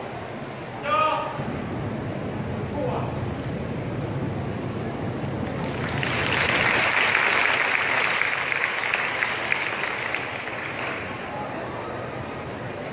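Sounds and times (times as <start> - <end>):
audience applauding: 5.4 - 11.3.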